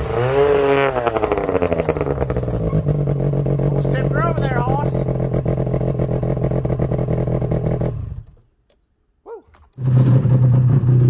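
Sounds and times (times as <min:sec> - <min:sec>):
snowmobile engine idling: 0:00.0 - 0:08.4.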